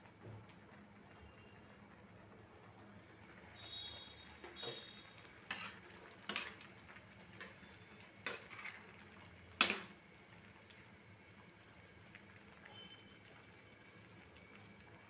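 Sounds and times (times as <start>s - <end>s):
spatula stirring greens: 4.6s - 10.0s.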